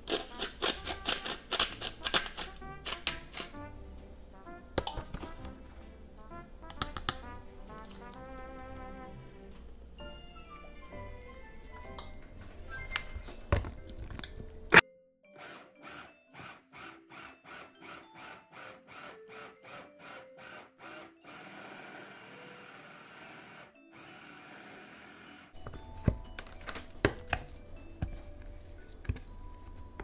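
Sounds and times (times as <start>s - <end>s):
food processor running: 15.4s - 25.6s.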